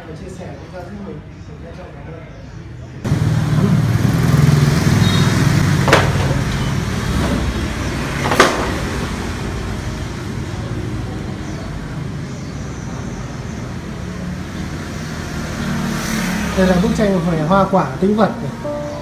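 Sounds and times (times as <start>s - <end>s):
road traffic rumble: 0.0s - 19.0s
vehicle engine hum: 3.1s - 10.2s.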